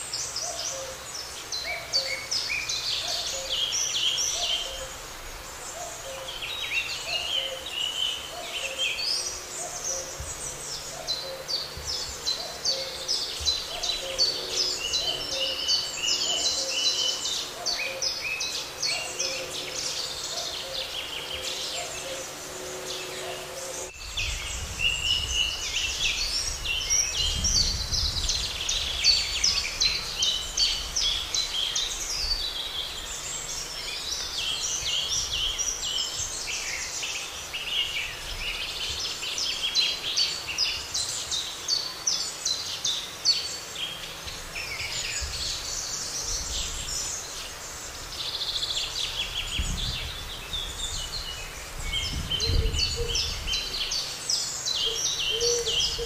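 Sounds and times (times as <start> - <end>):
songbirds singing: 0.0 - 56.0
low hooting call: 18.9 - 24.0.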